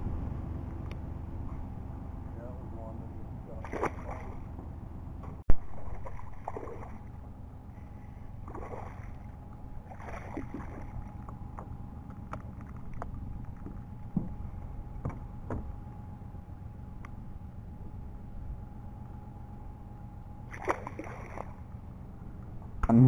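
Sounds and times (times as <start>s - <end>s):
steady low rumble: 0.0s - 23.0s
fish splashing at surface: 3.6s - 4.4s, 5.6s - 7.1s, 8.5s - 9.2s, 9.9s - 11.0s, 20.5s - 21.6s.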